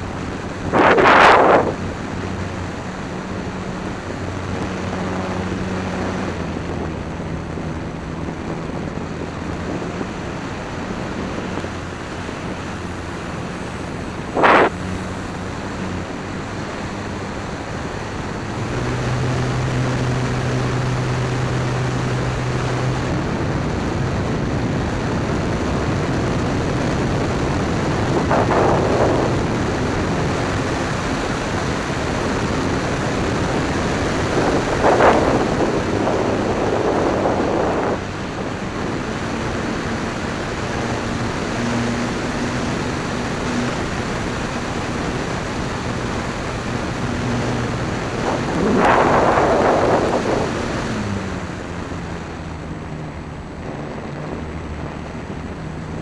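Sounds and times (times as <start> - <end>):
airflow rushing over microphone: 0.0 - 56.0
electric motor hum: 33.1 - 52.1.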